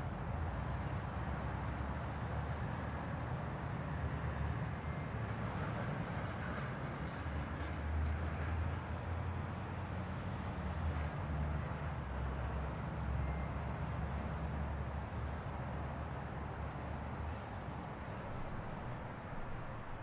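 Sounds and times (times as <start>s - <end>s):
vehicle interior rumble and hiss: 8.2s - 20.0s.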